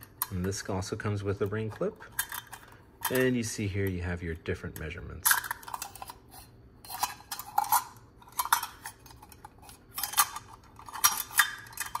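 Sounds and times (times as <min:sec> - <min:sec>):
metal measuring cups clinking: 0:00.0 - 0:04.1, 0:04.8 - 0:12.0.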